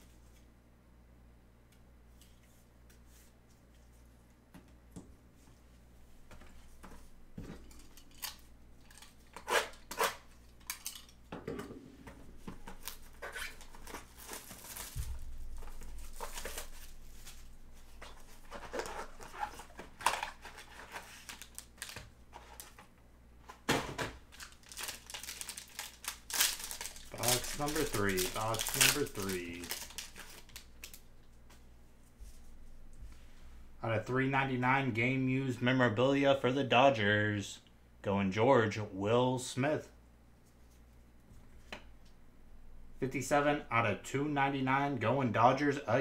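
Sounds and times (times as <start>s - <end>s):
plastic wrapping crinkling: 12.3s - 22.8s, 24.2s - 31.4s.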